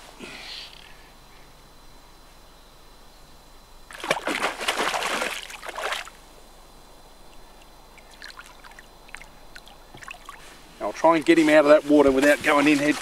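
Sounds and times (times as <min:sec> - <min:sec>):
fish splashing in water: 0:03.9 - 0:06.2, 0:07.3 - 0:10.5.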